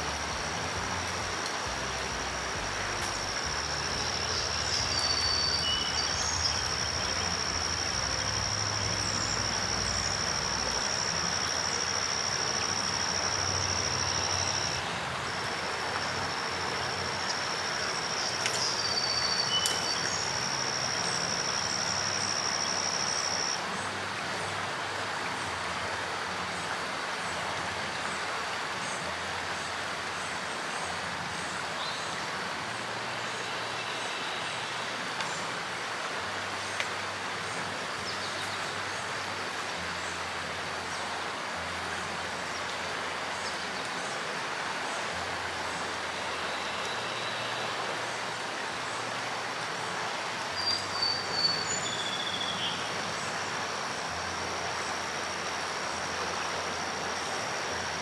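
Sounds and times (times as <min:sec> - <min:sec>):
river water rushing over rocks: 0:00.0 - 0:58.0.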